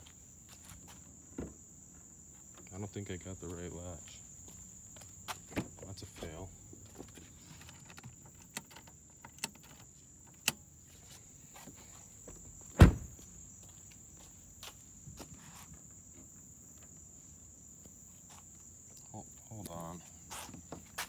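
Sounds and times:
cricket trill: 0:00.0 - 0:21.0
footsteps: 0:10.9 - 0:15.8, 0:20.3 - 0:21.0
heavy thud from car body: 0:12.7 - 0:13.2.

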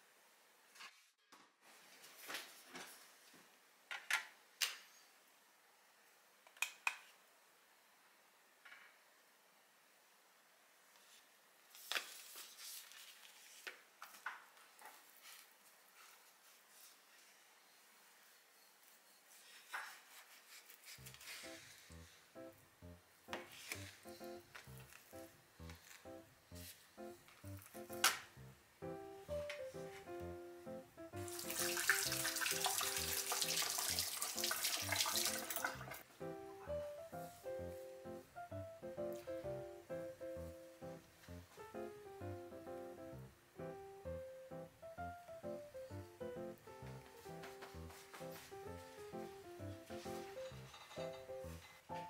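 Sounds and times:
background music: 0:21.4 - 0:52.0
kitchen tap running: 0:31.2 - 0:36.0.

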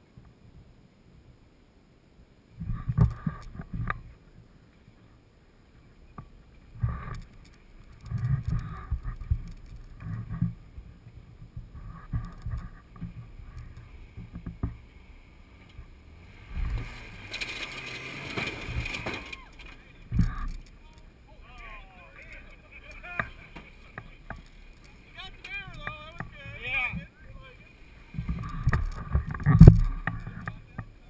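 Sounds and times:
truck engine revving: 0:14.8 - 0:20.8.

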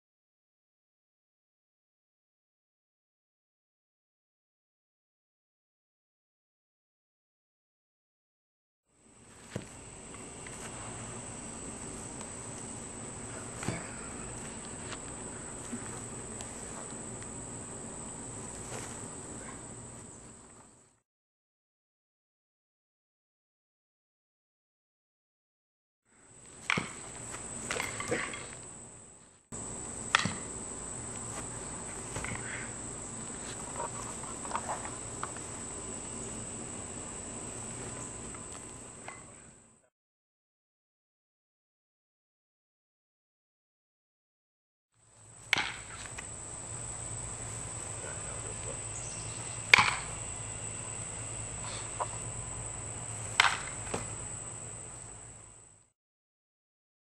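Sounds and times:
insects buzzing: 0:09.0 - 0:21.0, 0:26.2 - 0:39.7, 0:45.1 - 0:55.9
thumps and scuffs on grass: 0:09.3 - 0:11.2, 0:11.8 - 0:17.3, 0:18.3 - 0:20.7, 0:26.5 - 0:28.6, 0:31.1 - 0:35.4, 0:53.3 - 0:54.2.

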